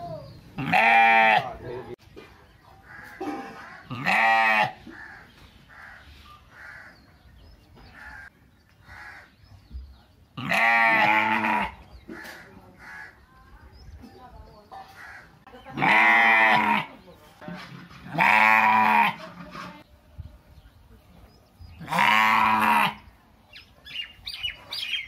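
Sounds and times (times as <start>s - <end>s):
sheep bleating: 0.6s - 1.6s, 3.9s - 4.8s, 10.4s - 11.8s, 18.1s - 19.2s.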